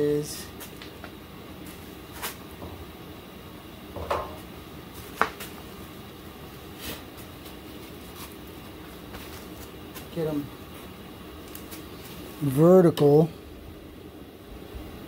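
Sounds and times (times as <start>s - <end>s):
low room hiss: 0.0s - 15.0s.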